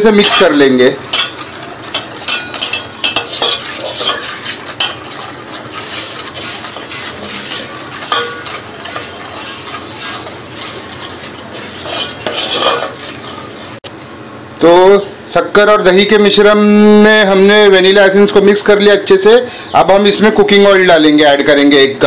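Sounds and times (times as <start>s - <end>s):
spoon clinking and scraping pot: 0.0s - 13.8s
spoon stirring thick mixture: 0.0s - 13.9s.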